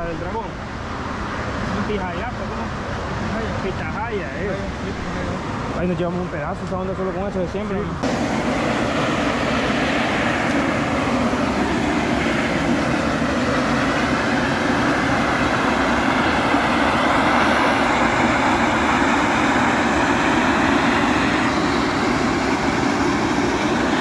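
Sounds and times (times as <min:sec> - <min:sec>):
steam jetting with rushing hiss: 0:08.0 - 0:24.0.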